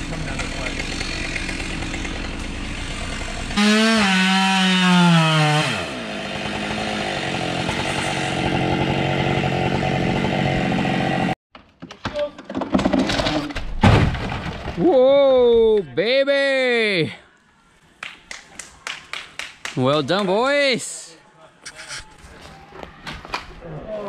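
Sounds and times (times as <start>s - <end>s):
chainsaw engine droning: 0.0s - 11.4s
chainsaw revving: 0.0s - 11.4s.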